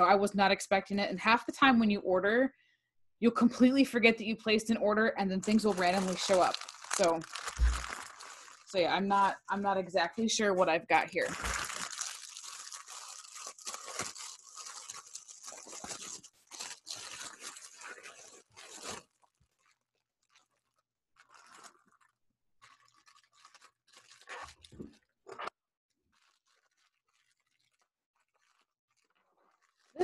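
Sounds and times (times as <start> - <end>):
packaging crinkling and tearing: 5.4 - 9.6, 10.9 - 30.0.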